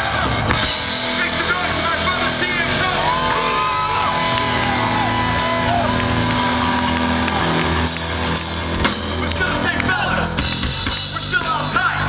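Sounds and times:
crowd shouts: 0.0s - 8.4s
bass guitar: 0.0s - 12.0s
loud electric guitar: 0.0s - 12.0s
punk band playing live: 0.0s - 12.0s.

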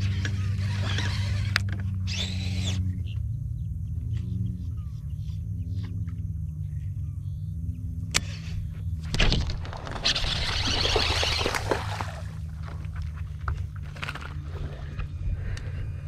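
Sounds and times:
steady low hum: 0.0s - 16.0s
fish splashing at surface: 9.5s - 13.2s.

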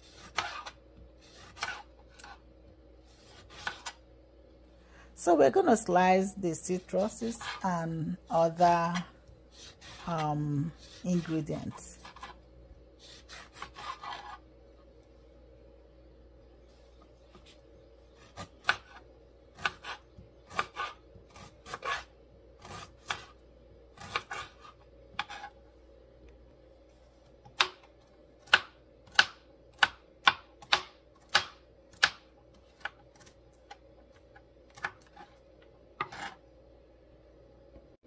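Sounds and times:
knife chopping on plastic board: 0.0s - 2.4s, 3.2s - 4.0s, 13.1s - 14.4s, 18.2s - 19.0s, 19.6s - 23.4s, 24.0s - 25.5s, 27.4s - 35.3s, 36.0s - 36.4s.

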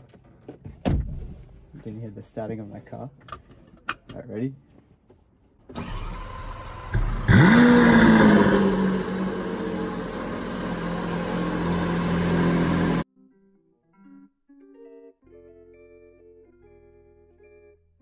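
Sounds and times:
car engine starting and idling: 5.7s - 13.0s
engine cranking: 5.7s - 13.0s.

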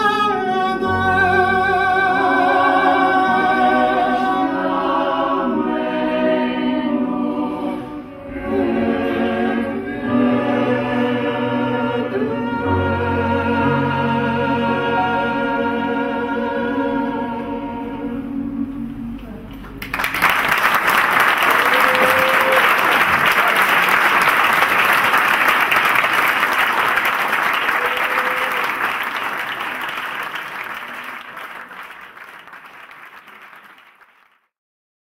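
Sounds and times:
choir holding chord: 0.0s - 19.3s
audience applause: 19.7s - 34.5s.

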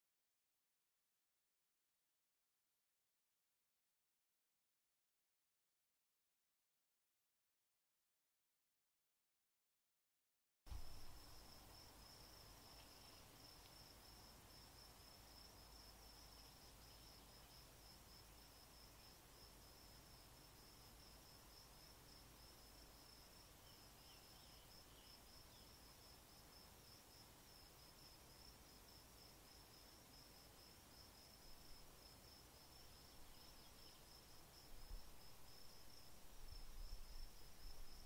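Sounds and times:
insects trilling: 10.7s - 38.0s.

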